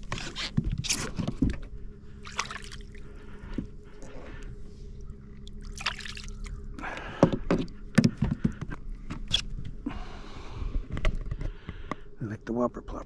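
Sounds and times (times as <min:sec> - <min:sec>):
low hum: 0:00.0 - 0:13.0
water splashing against boat: 0:02.2 - 0:03.1.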